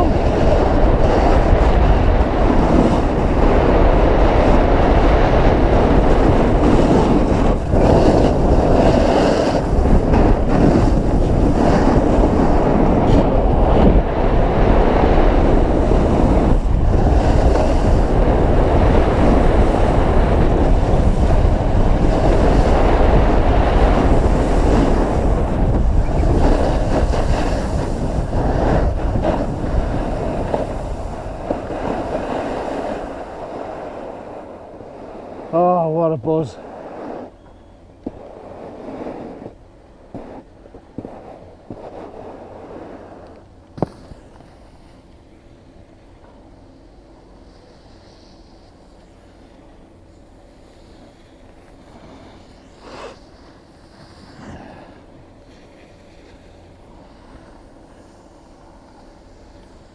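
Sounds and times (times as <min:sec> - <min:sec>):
skis scraping on snow: 0:00.0 - 0:37.3, 0:38.0 - 0:45.7, 0:46.3 - 0:59.9
wind buffeting microphone: 0:00.0 - 0:47.4.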